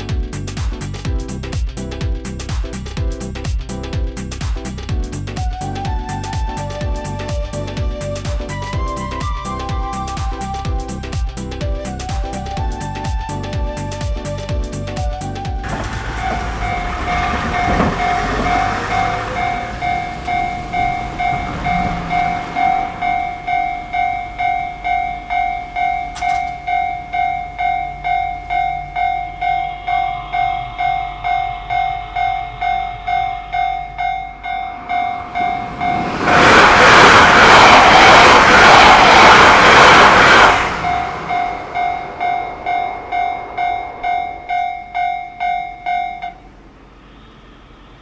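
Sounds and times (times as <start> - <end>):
train rushing past: 2.2 - 48.0
level-crossing bell clanging: 15.7 - 36.5, 40.8 - 46.5.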